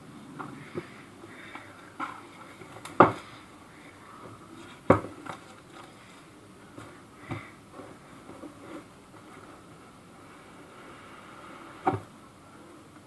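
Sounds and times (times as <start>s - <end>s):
sharp knocks on cardboard box: 3.0s - 3.3s.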